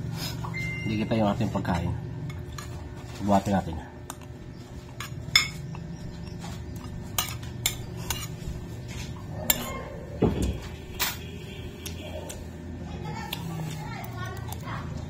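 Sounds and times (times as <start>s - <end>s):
metal spoon clinking on plate: 7.1s - 8.3s, 9.5s - 9.8s.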